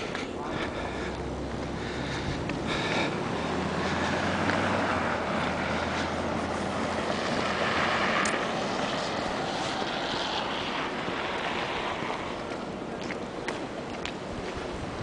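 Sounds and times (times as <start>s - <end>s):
low engine hum: 0.0s - 15.0s
street traffic: 0.0s - 15.0s
wind on microphone: 6.5s - 15.0s.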